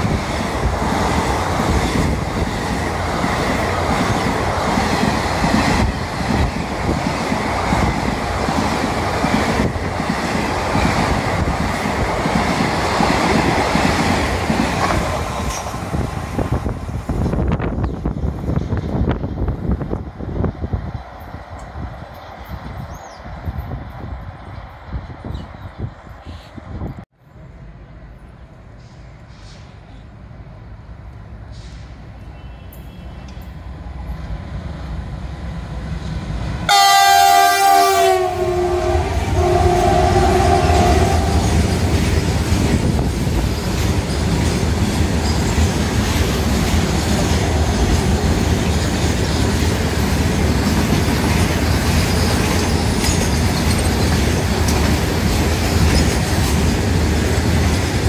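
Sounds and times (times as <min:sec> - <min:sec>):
train wheels clickety-clack: 0:00.0 - 0:17.9, 0:41.1 - 0:58.0
train rumbling: 0:00.0 - 0:58.0
locomotive horn blast: 0:36.7 - 0:41.6.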